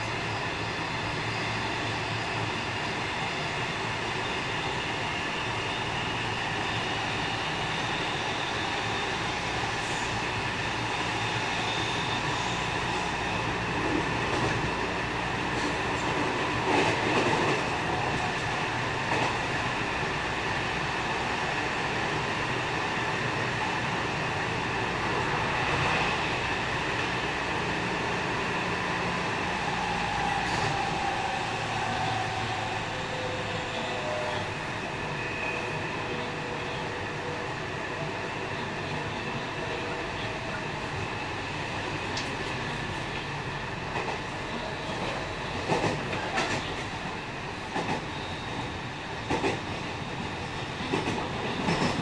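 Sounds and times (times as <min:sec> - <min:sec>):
train wheels rumbling on rails: 0:00.0 - 0:52.0
train clatter: 0:42.0 - 0:52.0.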